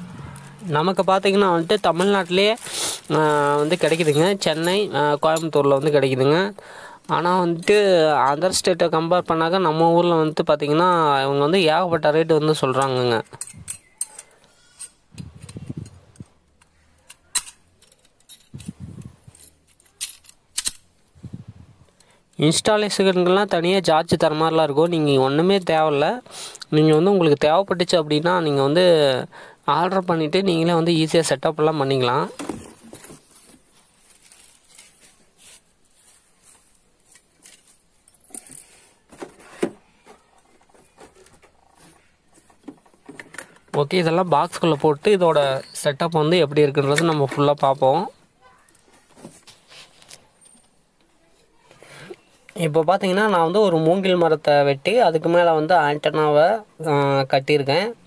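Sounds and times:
metal parts clinking: 16.2s - 21.0s, 37.1s - 38.8s.

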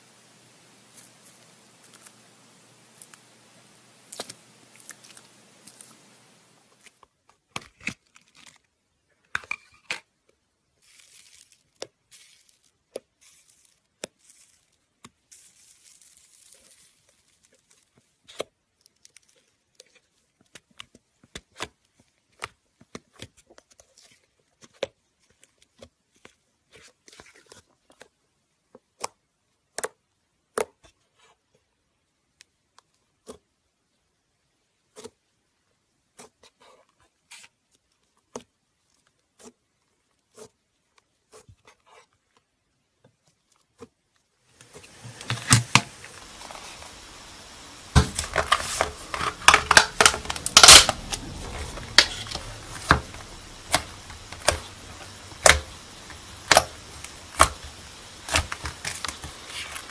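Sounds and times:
slime popping and crackling: 2.8s - 6.2s, 44.6s - 59.9s
slime sticky tearing: 4.0s - 6.0s, 46.2s - 59.9s.

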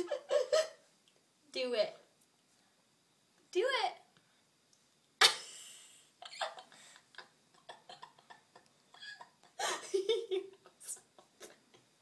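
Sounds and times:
woman laughing: 0.0s - 0.8s, 5.2s - 11.9s.

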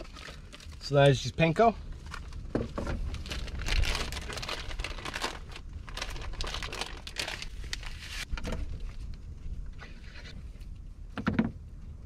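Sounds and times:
plastic bag crinkling: 2.0s - 8.3s.

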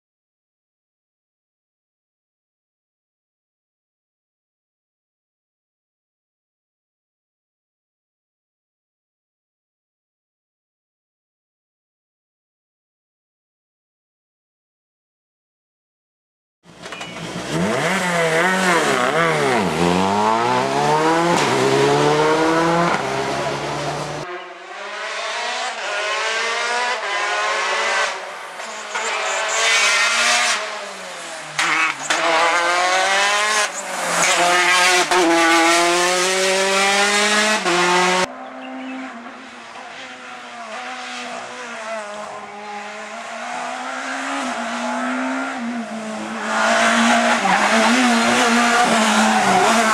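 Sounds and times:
rally car engines revving: 16.7s - 49.9s.

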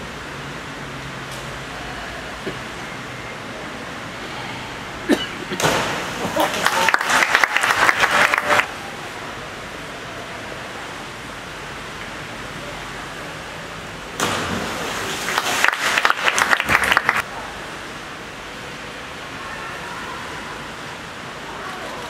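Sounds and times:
diver splashing into water: 5.5s - 8.6s, 14.2s - 17.2s
crowd clapping: 6.2s - 8.7s, 15.0s - 17.3s.

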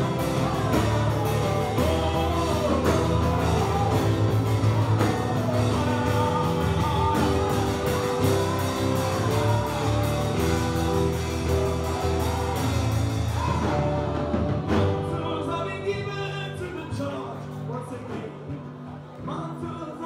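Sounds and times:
percussion beat: 0.0s - 15.3s
instrumental band music: 0.0s - 20.0s.

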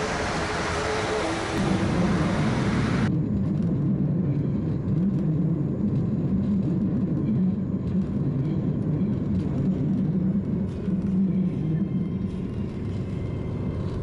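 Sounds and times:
train rumble inside carriage: 0.0s - 14.0s.

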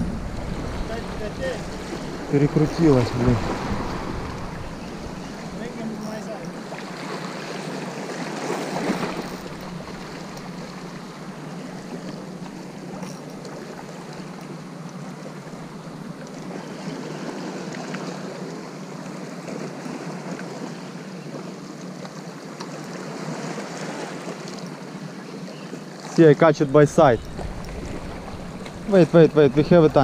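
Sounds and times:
wind on microphone: 0.0s - 5.8s, 26.8s - 30.0s
sea surf: 0.0s - 30.0s.

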